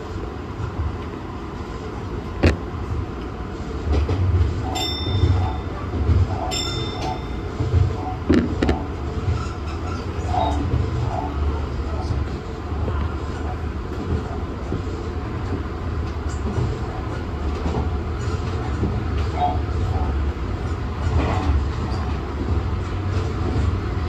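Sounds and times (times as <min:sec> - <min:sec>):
train wheels rumbling on rail: 0:00.0 - 0:24.0
clacks over rail joints: 0:03.2 - 0:11.0.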